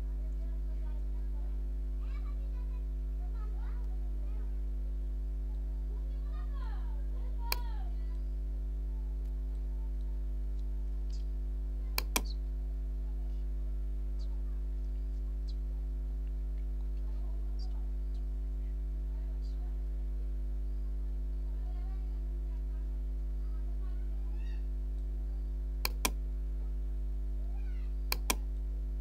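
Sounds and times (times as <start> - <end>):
low electrical hum: 0.0 - 29.0
sharp clicks: 7.4 - 7.7, 11.9 - 12.4, 25.8 - 26.2, 28.1 - 28.6.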